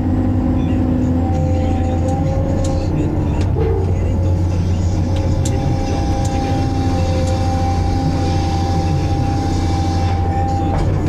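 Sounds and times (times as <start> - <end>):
high-pitched whine: 0.0 - 11.0
low engine drone: 0.0 - 11.0.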